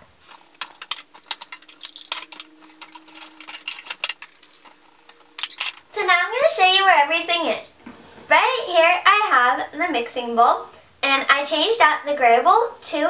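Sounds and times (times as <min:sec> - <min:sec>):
plastic toy pieces clattering: 0:00.2 - 0:05.9.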